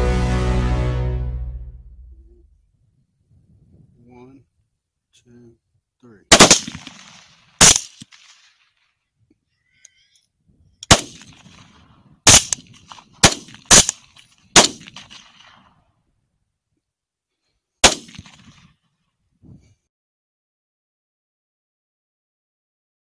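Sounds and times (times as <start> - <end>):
rifle shots with echo: 6.3 - 8.7, 10.8 - 15.7, 17.8 - 18.7.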